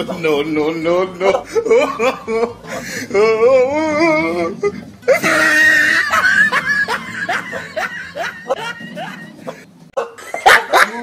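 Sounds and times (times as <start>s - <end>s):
rising giggles: 0.0s - 11.0s
warbling voice-like tone: 3.1s - 9.6s.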